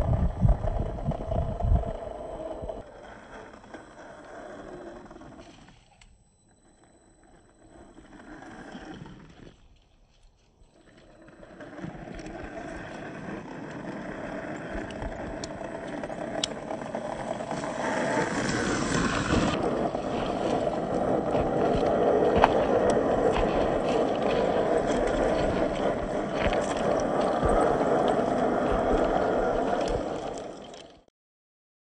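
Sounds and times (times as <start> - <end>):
toy car motor and gears: 0.6 - 9.7, 10.7 - 31.1
tyres clicking on stones: 12.0 - 31.0.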